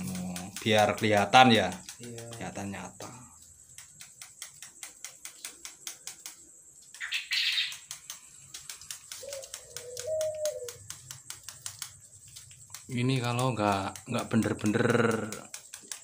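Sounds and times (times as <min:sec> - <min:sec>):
soldering iron tapping plastic: 0:00.0 - 0:02.6.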